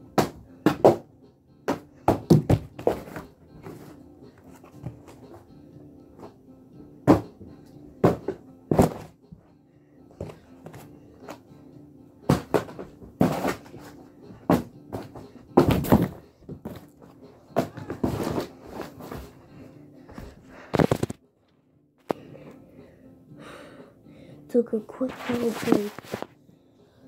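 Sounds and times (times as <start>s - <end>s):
heavy objects thudding on carpet: 8.0s - 9.1s.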